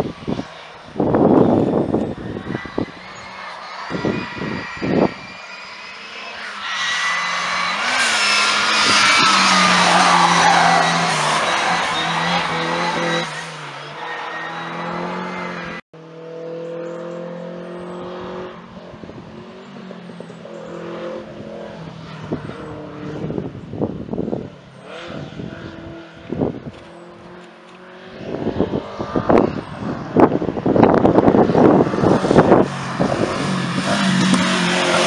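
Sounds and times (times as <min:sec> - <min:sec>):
approaching race car: 0:00.0 - 0:35.0
race car engine revving: 0:01.0 - 0:18.6, 0:24.8 - 0:35.0.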